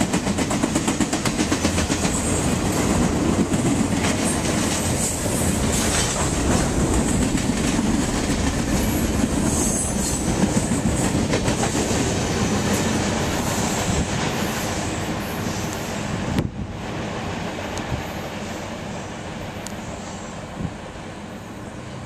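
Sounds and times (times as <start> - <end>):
clickety-clack over rail joints: 0.0 - 16.7
train wheels rumbling on rails: 0.0 - 22.0.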